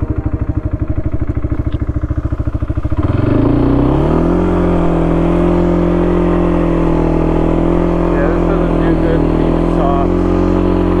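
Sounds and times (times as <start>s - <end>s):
atv engine idling and revving: 0.0s - 11.0s.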